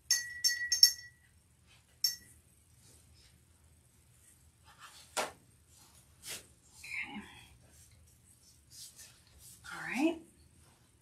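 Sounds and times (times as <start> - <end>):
paintbrush clinking on jar: 0.0 - 1.3, 2.0 - 2.4.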